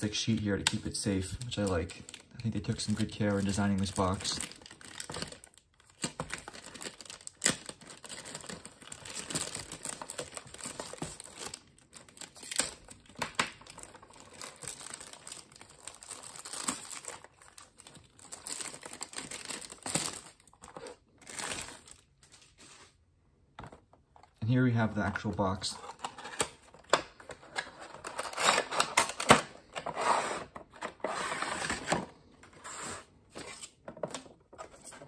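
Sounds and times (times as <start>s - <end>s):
plastic wrapping crinkling: 0.2s - 23.0s.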